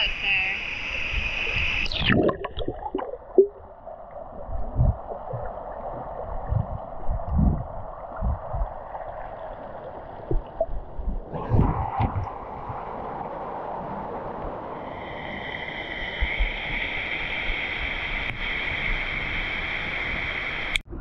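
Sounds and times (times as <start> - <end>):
muffled underwater water noise: 0.0 - 21.0
rush of bubbles: 1.5 - 19.7
low underwater thumps: 2.1 - 9.3, 10.2 - 12.8.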